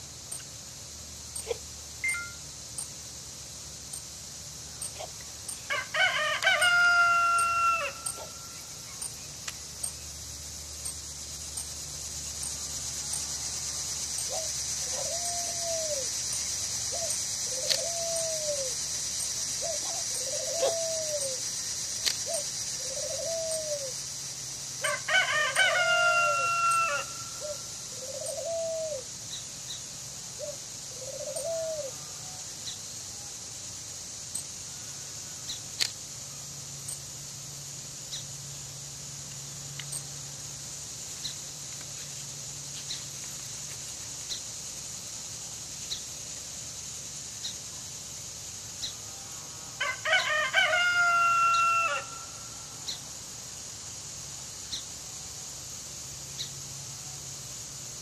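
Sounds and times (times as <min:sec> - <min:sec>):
short rising-and-falling calls: 0:01.4 - 0:02.5, 0:05.5 - 0:09.2, 0:24.8 - 0:29.1
rooster crowing: 0:05.6 - 0:08.6, 0:24.8 - 0:27.7, 0:49.8 - 0:52.5.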